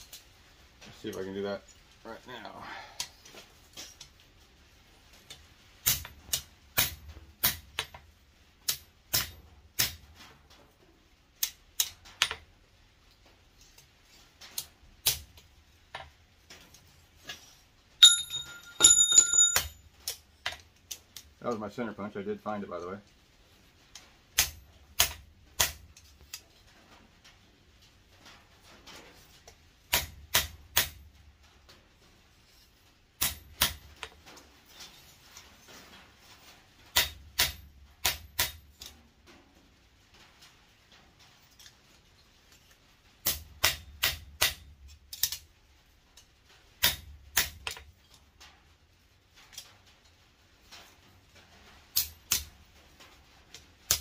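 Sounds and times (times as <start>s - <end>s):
hammer tapping metal on anvil: 18.0s - 19.8s.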